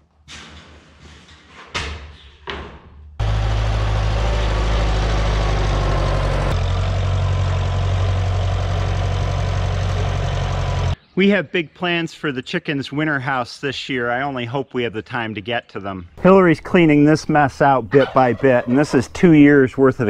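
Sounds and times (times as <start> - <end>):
tractor engine running: 3.2 - 11.0.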